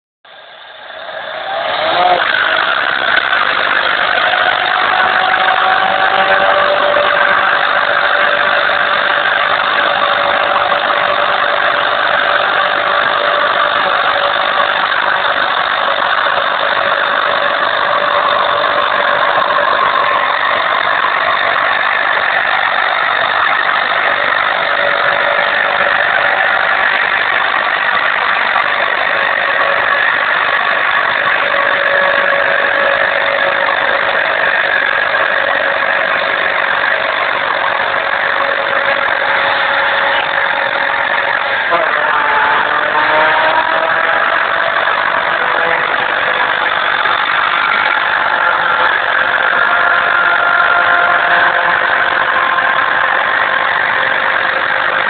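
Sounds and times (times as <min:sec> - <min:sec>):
car engine at high revs: 0:00.3 - 0:55.0
tyres squealing on pavement: 0:00.9 - 0:55.0.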